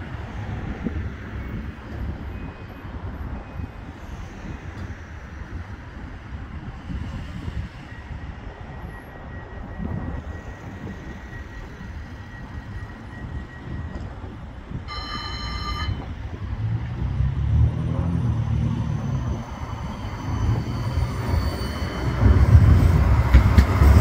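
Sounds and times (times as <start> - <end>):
tram rumbling: 0.0 - 24.0
tram motor hum: 8.3 - 24.0
electronic warning tone: 14.9 - 16.1.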